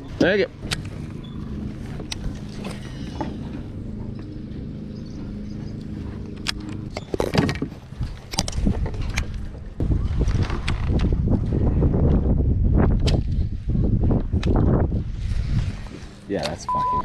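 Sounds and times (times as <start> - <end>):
electric trolling motor humming: 0.0 - 9.8
low rumble: 0.0 - 17.0.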